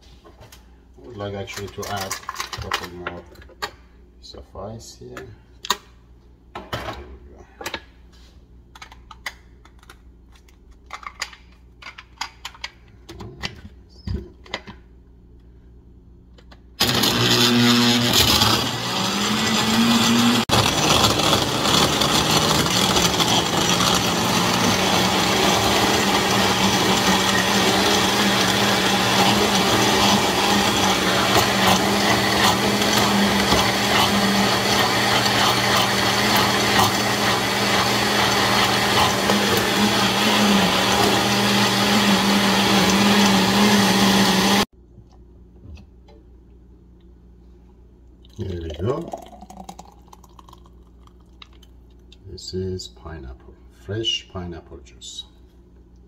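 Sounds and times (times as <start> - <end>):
blender crushing ice: 16.8 - 44.7.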